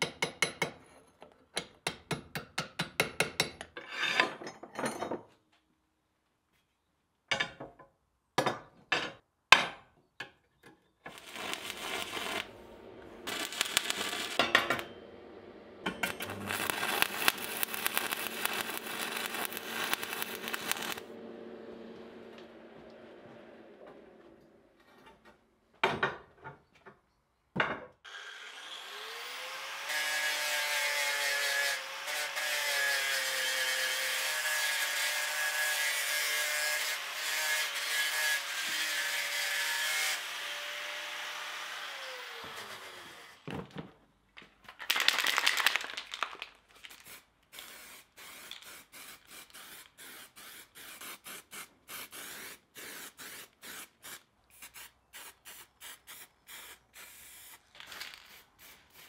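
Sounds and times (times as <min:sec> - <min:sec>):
angle grinder grinding steel: 0:11.1 - 0:23.5.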